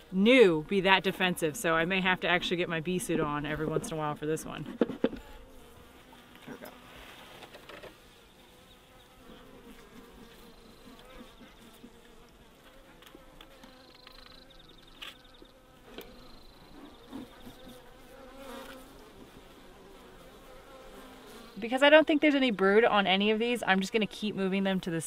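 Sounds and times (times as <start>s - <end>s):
bees humming: 7.8s - 25.0s.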